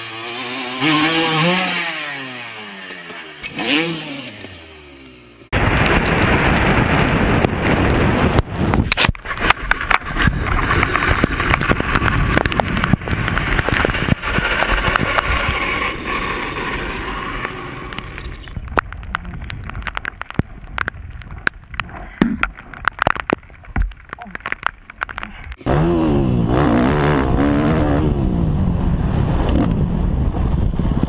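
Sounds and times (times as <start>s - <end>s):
motorcycle scraping on road: 0.0s - 21.5s.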